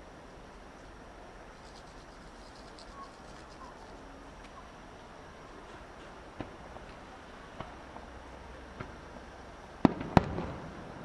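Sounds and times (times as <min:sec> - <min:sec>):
steady outdoor hiss: 0:00.0 - 0:11.0
rapid high chirping: 0:01.5 - 0:04.7.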